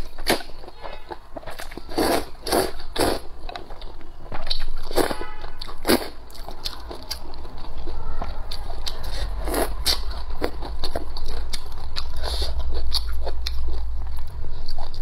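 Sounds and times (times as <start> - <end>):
wet chewing: 0.0 - 15.0
loud slurping noodles: 1.9 - 3.3.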